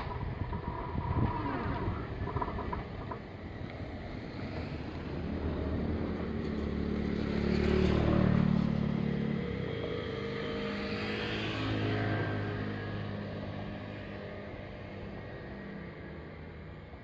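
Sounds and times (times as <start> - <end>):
electric train passing: 0.0 - 17.0.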